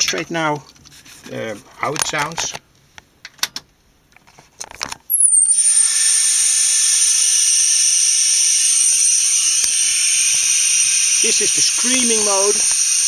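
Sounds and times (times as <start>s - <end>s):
piercing high electronic whistle: 5.1s - 13.0s
hissing noise: 6.4s - 13.0s.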